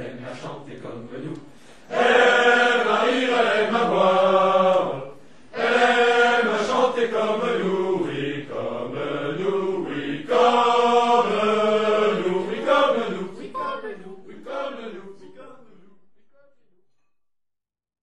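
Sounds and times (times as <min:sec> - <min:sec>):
group of voices singing: 0:00.0 - 0:16.0.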